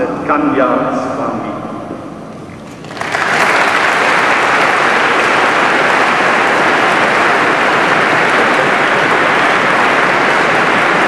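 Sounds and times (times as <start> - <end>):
congregation applauding: 2.5 - 11.0.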